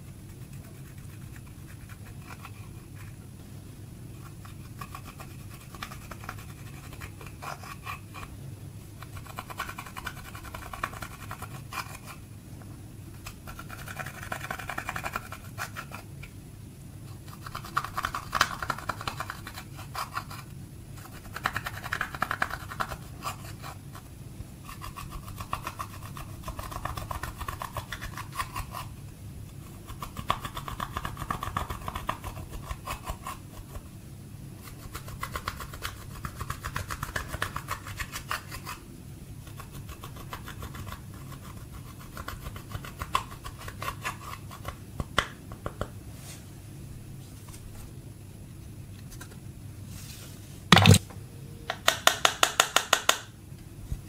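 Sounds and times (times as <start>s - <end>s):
faint low hum: 0.0s - 51.9s
tool scratching eyeshadow: 4.2s - 8.3s, 9.0s - 12.2s, 13.2s - 16.0s.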